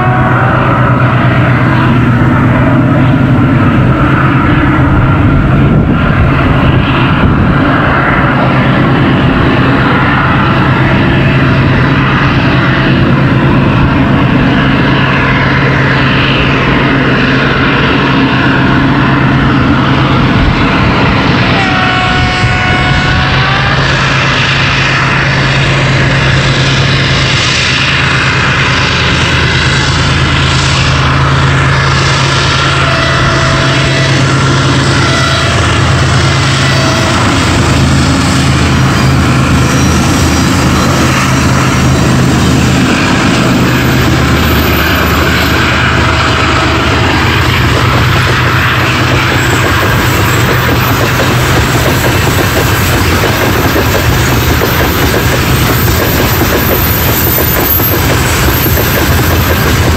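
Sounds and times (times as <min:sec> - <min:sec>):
locomotive engine drone: 0:00.0 - 0:59.9
locomotive horn blast: 0:00.0 - 0:59.9.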